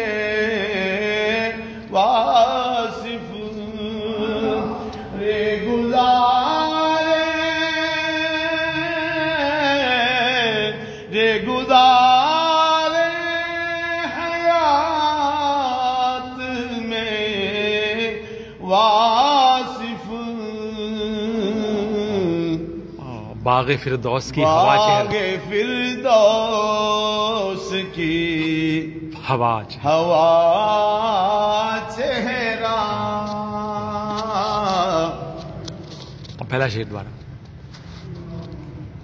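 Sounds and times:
man singing solo: 24.4 - 25.9.

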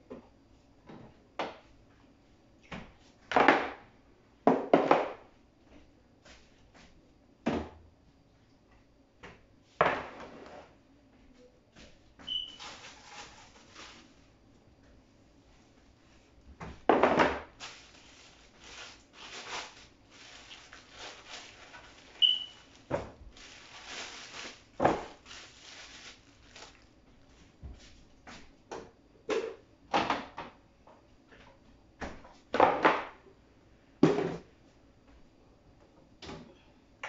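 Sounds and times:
food containers and packets clattering: 16.8 - 26.9.

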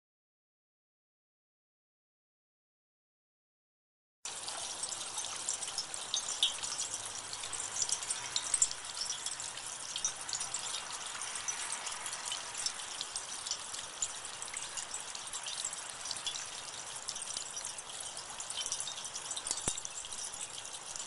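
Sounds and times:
small drops ticking: 4.3 - 21.0
water splashing down rain chain: 4.3 - 21.0.

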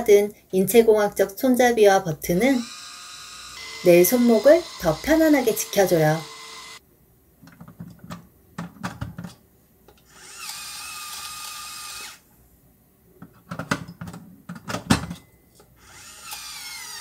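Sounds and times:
spice grinder motor whining: 2.4 - 6.8.

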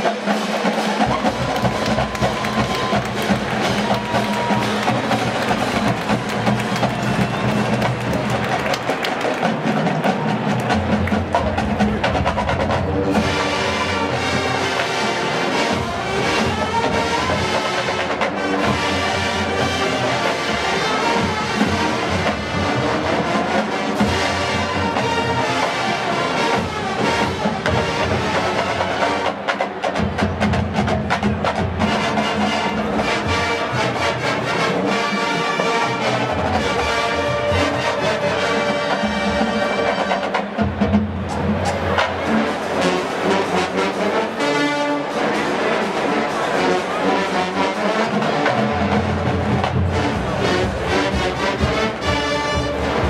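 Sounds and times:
drumline playing: 0.0 - 53.0
marching band brass: 0.0 - 53.0.

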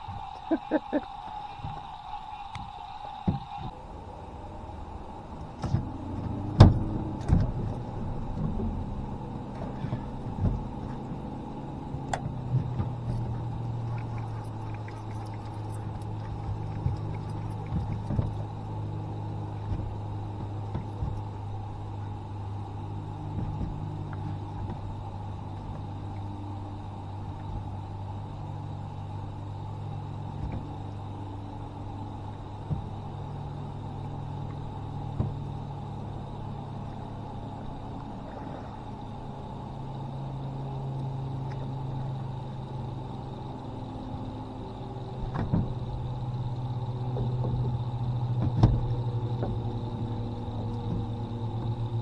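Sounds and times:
low engine hum: 0.0 - 52.0.

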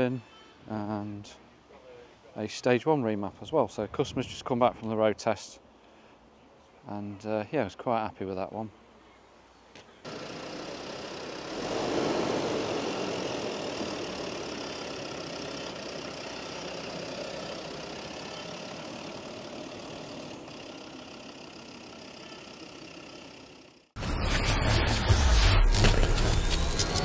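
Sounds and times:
diesel engine idling: 10.1 - 24.2.

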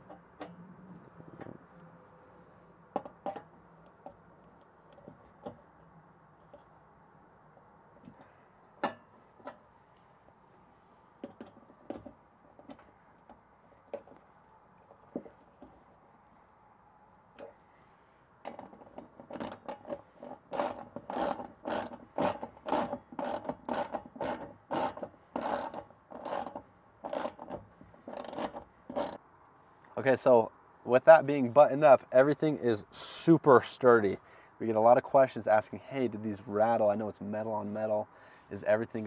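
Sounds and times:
hand ratchet clicking: 19.3 - 29.2.

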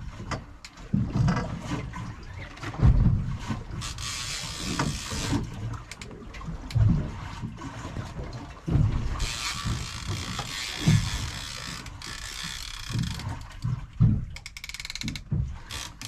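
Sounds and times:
water slapping against boat hull: 0.0 - 16.0.

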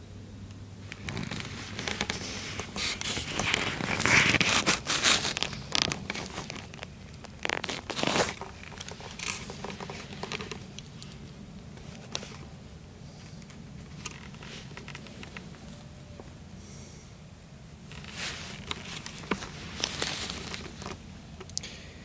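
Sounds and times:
clothing rustling and scraping: 0.8 - 12.5, 13.2 - 16.1, 17.9 - 21.3.

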